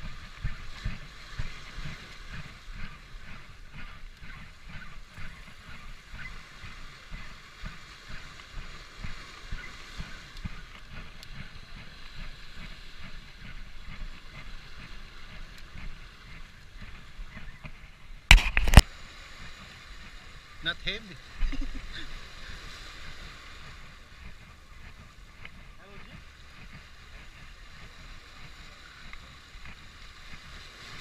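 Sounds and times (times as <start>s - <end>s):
sea surf against rocks: 0.0s - 31.0s
wind on microphone: 0.0s - 31.0s
hand knocking camera: 17.3s - 18.8s.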